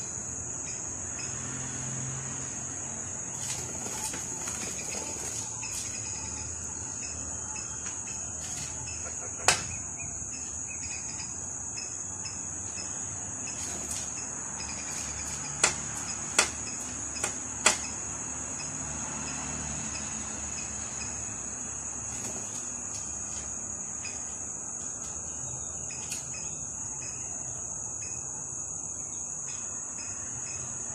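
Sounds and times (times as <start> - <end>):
high-pitched insect trill: 0.0 - 30.9.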